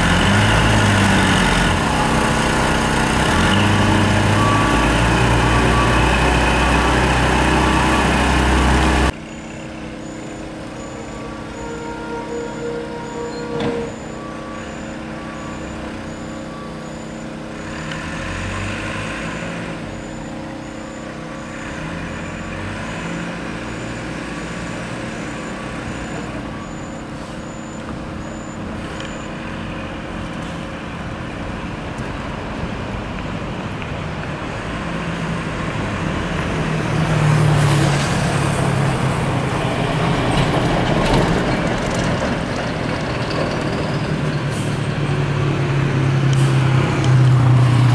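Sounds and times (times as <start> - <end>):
faint high beep: 9.3 - 17.9, 19.9 - 24.1, 25.3 - 29.4.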